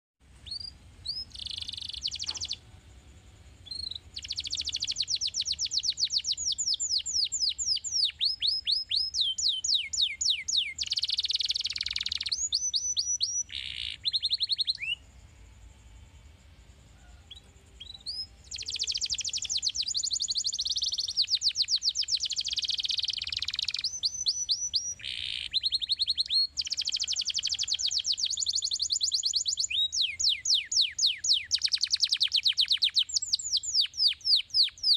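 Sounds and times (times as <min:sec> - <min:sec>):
canary singing trills: 0:00.4 - 0:34.9.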